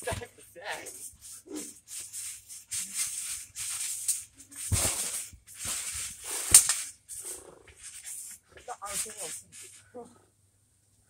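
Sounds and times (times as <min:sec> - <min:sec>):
rustling swishes: 0:00.0 - 0:10.0
sharp thuds: 0:04.6 - 0:06.9.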